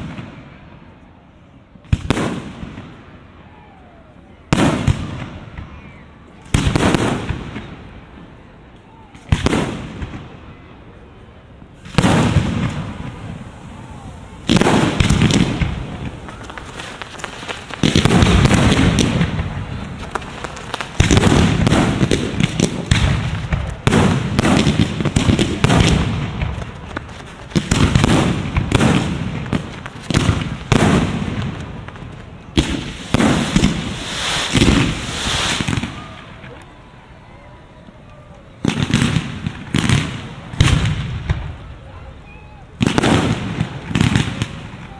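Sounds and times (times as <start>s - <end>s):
fireworks crackling: 0.0s - 3.6s, 4.4s - 44.9s
fireworks shells booming: 11.6s - 36.6s, 38.6s - 44.9s.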